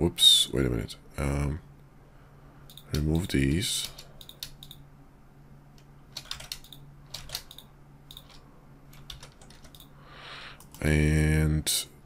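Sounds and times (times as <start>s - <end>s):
faint low hum: 0.0s - 12.0s
keyboard keys clicking: 6.1s - 9.9s.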